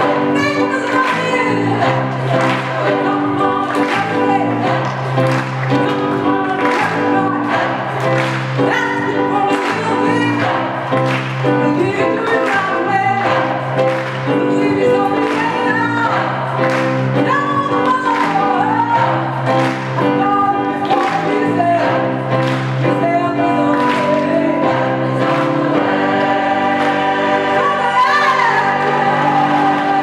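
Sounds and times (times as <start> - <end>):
choir singing: 0.0 - 11.1, 14.6 - 17.1, 23.5 - 30.0.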